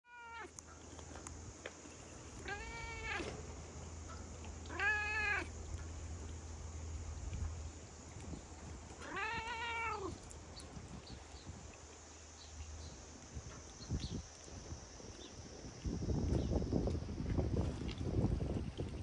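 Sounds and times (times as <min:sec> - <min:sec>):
cat meowing: 0:00.0 - 0:00.5, 0:02.4 - 0:03.3, 0:04.7 - 0:05.5, 0:09.0 - 0:10.2.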